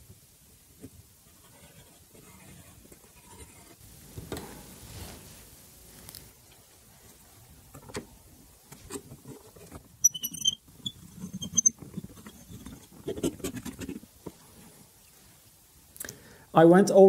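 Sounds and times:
high squeaks: 10.0s - 12.7s
tester tip scraping painted metal: 10.0s - 13.3s.

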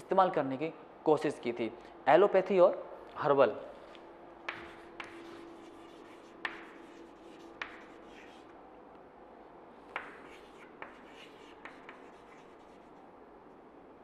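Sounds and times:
chalk tapping on board: 4.4s - 8.5s, 9.9s - 12.8s
chalk scratching on blackboard: 4.5s - 8.5s, 9.9s - 13.0s.

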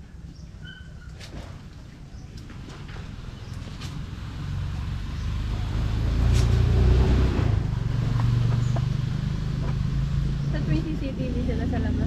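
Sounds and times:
vehicle engine running: 3.1s - 12.0s.

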